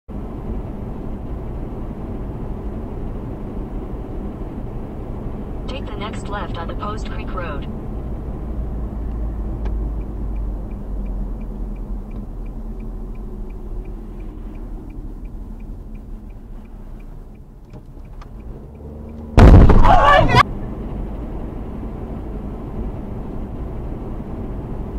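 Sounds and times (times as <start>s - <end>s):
road and engine rumble: 0.1s - 24.9s
turn signal ticking: 0.2s - 21.0s
loud car crash: 19.4s - 20.4s.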